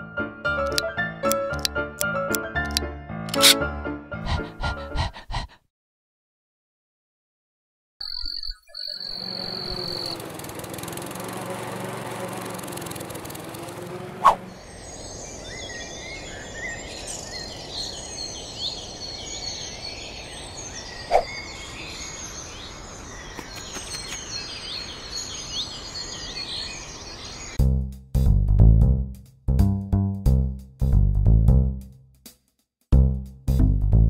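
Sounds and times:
birds chirping and twittering: 0:08.0 - 0:27.6
lawn mower engine running: 0:09.1 - 0:15.0.

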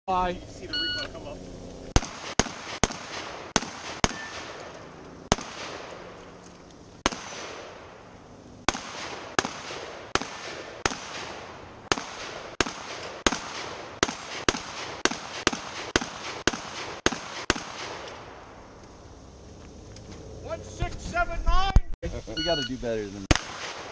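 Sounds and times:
shotgun shots: 0:01.9 - 0:06.2, 0:07.0 - 0:08.0, 0:08.6 - 0:18.5, 0:23.3 - 0:23.9.

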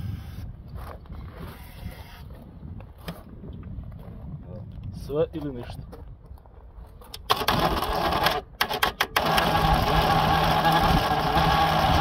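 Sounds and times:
engine cranking without catching: 0:07.2 - 0:12.0.

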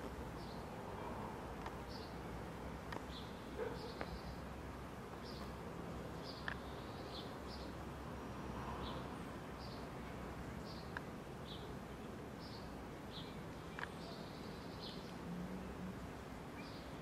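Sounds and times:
small birds chirping: 0:00.0 - 0:17.0
faint clicks: 0:02.9 - 0:03.1, 0:06.4 - 0:06.7, 0:13.7 - 0:14.0.

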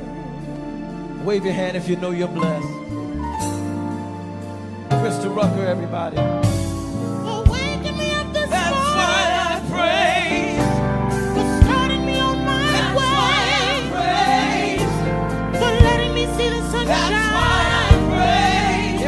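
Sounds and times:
keyboard chords and bass: 0:00.0 - 0:19.0
woman singing gospel: 0:07.3 - 0:10.8, 0:11.4 - 0:19.0.

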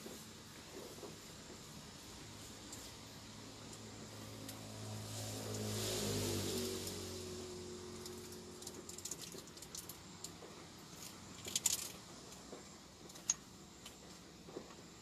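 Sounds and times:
small clicks and light rattles: 0:08.0 - 0:14.8.

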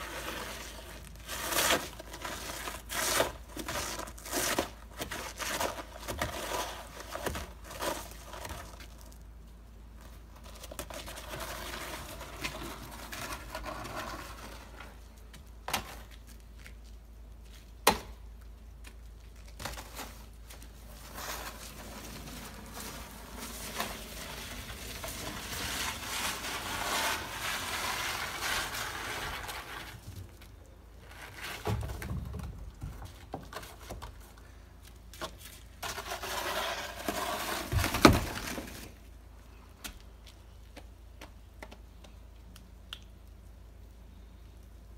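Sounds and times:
plastic shovel scraping slush: 0:00.0 - 0:08.6, 0:20.8 - 0:30.1, 0:35.8 - 0:38.9.

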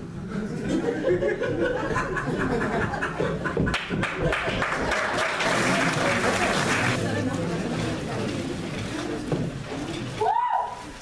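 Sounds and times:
audience applauding: 0:03.7 - 0:07.0.

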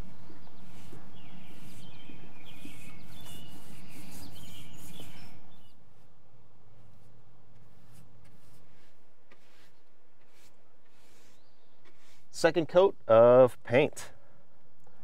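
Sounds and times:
birds chirping: 0:00.0 - 0:06.0, 0:09.4 - 0:13.2.

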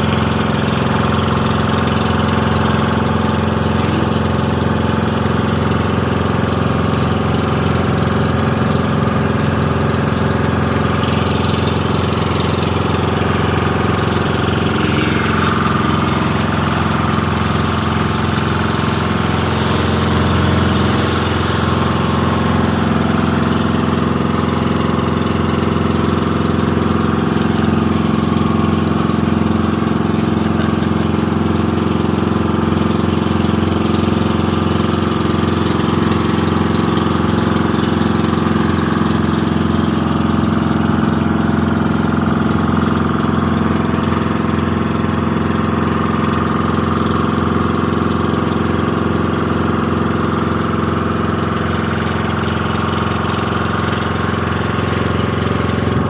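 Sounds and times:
boat engine droning: 0:00.0 - 0:56.0.

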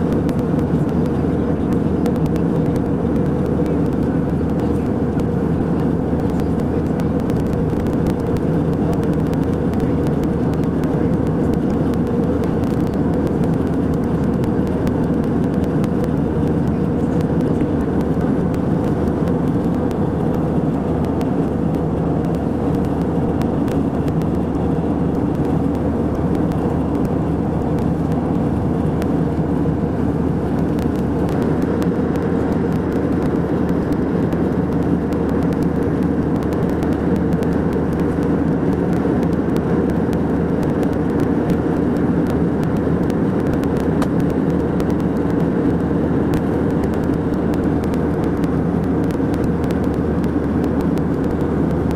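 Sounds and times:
airliner cabin engine rumble: 0:00.0 - 0:51.9.

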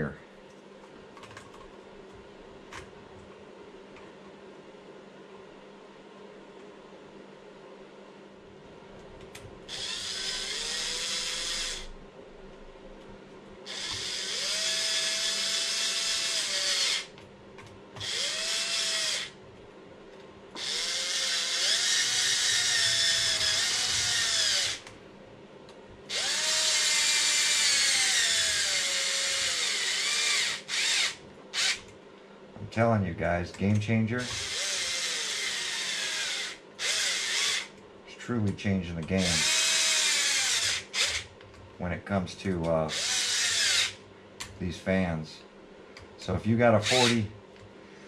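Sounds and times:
cordless drill motor whine: 0:09.7 - 0:12.0, 0:13.7 - 0:17.1, 0:18.0 - 0:19.4, 0:20.6 - 0:24.9, 0:26.1 - 0:31.8, 0:34.2 - 0:37.7, 0:39.2 - 0:41.3, 0:42.9 - 0:44.0, 0:46.8 - 0:47.2.

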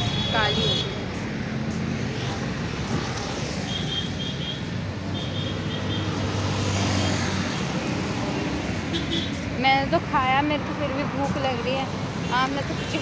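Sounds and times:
road traffic: 0:00.0 - 0:13.0.

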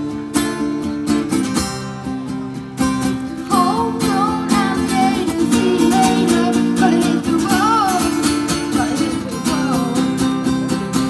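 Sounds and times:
acoustic guitar strumming: 0:00.0 - 0:11.0
boy singing: 0:03.5 - 0:10.2.

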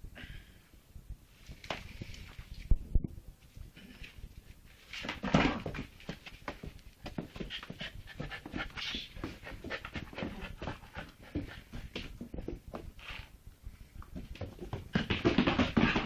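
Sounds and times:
dog panting: 0:07.2 - 0:12.5.

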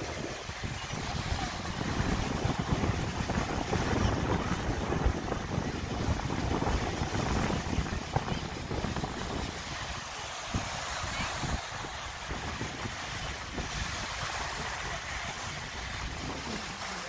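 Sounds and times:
small waves on shore: 0:00.0 - 0:17.0
wind buffeting microphone: 0:00.0 - 0:17.0.

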